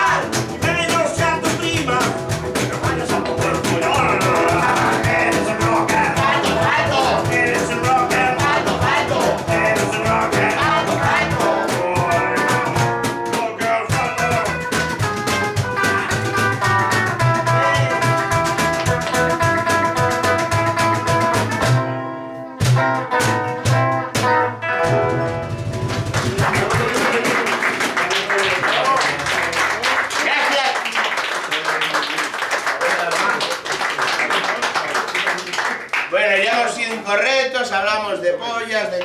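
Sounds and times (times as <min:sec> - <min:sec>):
man singing: 0:00.0 - 0:14.8, 0:17.4 - 0:18.7
electric guitar playing: 0:00.0 - 0:27.2.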